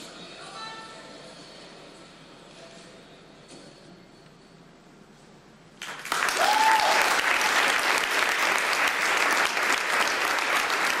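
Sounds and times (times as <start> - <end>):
audience applause: 5.8 - 11.0
rising cheer: 5.9 - 10.9.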